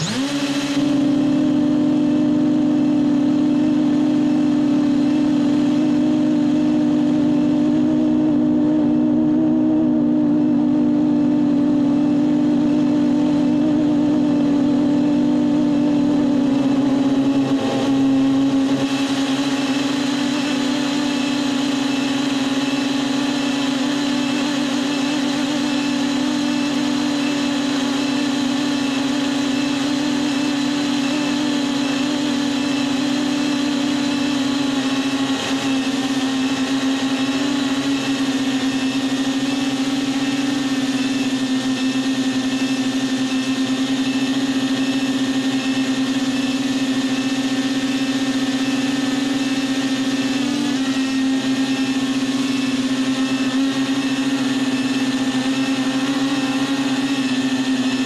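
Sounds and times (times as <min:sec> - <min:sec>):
drone propellers humming: 0:00.0 - 0:58.0.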